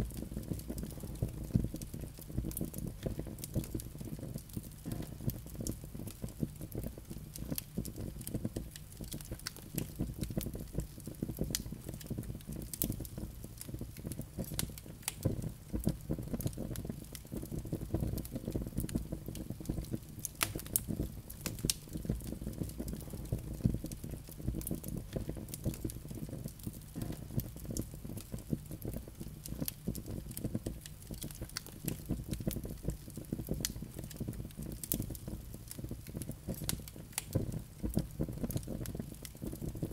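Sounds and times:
burning logs crackling and popping: 0.0s - 39.9s
fire flames rumbling: 0.0s - 39.9s.

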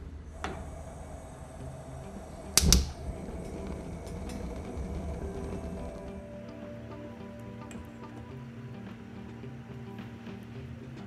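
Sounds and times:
gas burner hissing: 0.0s - 11.0s
faint ticks: 0.3s - 11.0s
gas igniter click: 2.4s - 4.4s.

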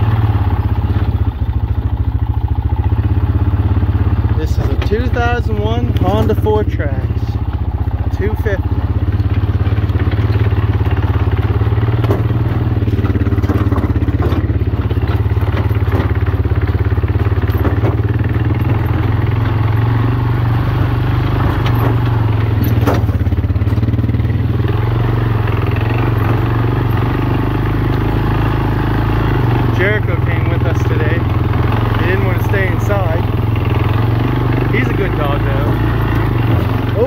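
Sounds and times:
atv engine running: 0.0s - 37.0s
knocks and scrapes: 4.4s - 5.2s, 17.2s - 20.2s, 20.8s - 23.9s.

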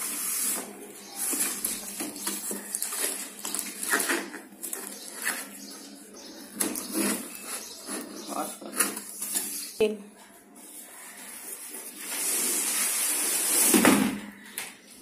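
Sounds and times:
cardboard box rustling and scraping: 6.7s - 9.6s.

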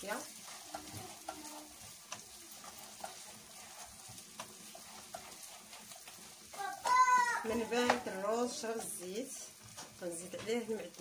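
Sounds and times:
rice sizzling faintly in oil: 0.0s - 11.0s
wooden spoon scraping a pot: 0.0s - 11.0s.

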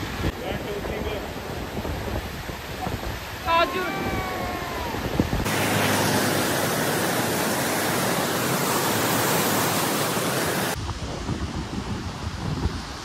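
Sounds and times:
wind on microphone: 0.0s - 5.6s, 9.3s - 13.0s
river whitewater rushing: 2.6s - 10.8s.

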